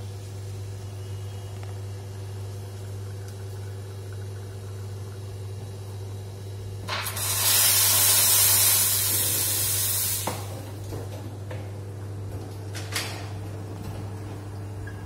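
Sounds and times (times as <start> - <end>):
machine low hum: 0.0 - 7.0, 9.1 - 15.0
espresso machine steam hiss: 6.9 - 10.6.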